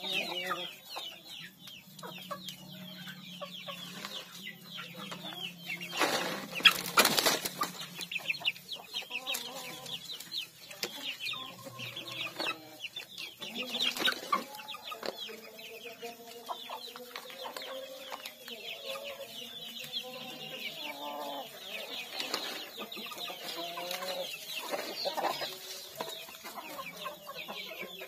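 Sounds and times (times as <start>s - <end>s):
chickens clucking: 0.0s - 28.0s
chicks peeping: 0.0s - 28.0s
rustling: 5.8s - 8.0s.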